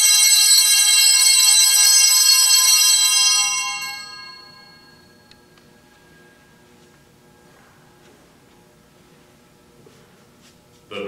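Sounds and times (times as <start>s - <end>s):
bells ringing: 0.0s - 6.8s.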